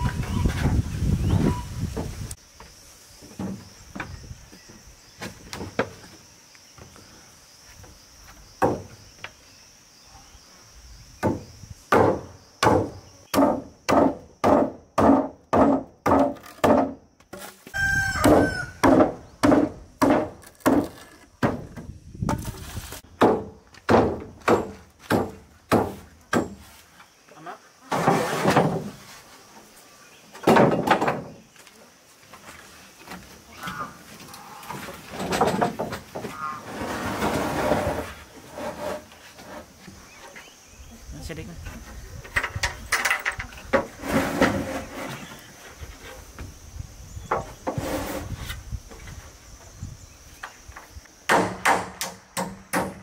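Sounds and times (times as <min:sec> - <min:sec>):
machete chopping wood: 0:11.2 - 0:17.5, 0:18.2 - 0:22.5, 0:23.2 - 0:26.6, 0:51.3 - 0:53.0.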